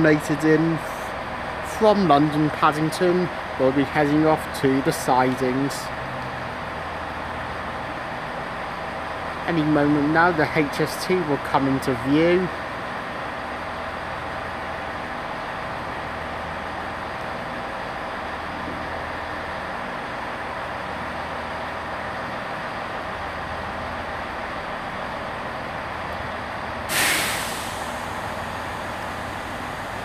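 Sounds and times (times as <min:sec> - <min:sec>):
train diesel engines idling: 0:00.0 - 0:30.0
loud air hiss: 0:26.9 - 0:30.0.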